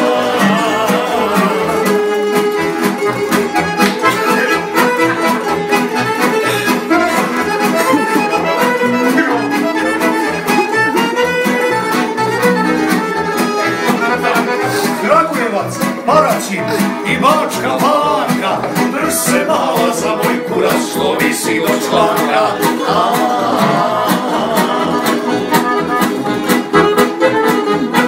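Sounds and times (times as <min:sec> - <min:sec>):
string orchestra playing lively music: 0:00.0 - 0:28.0.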